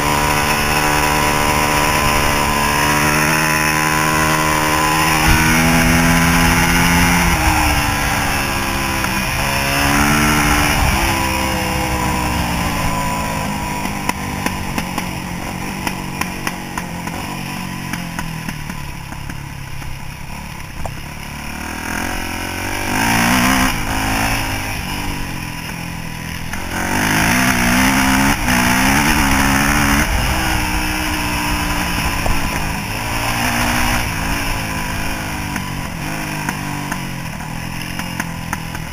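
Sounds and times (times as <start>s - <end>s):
dirt bike engine revving: 0.0s - 38.9s.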